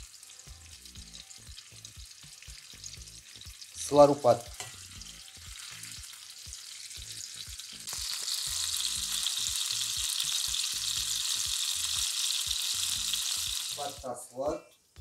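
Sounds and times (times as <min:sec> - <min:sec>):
meat sizzling in a frying pan: 0:00.0 - 0:14.1.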